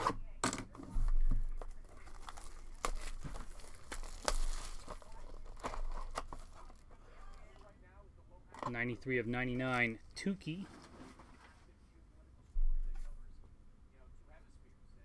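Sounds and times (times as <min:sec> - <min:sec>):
plastic shrink-wrap crinkling and tearing: 0:01.6 - 0:07.5.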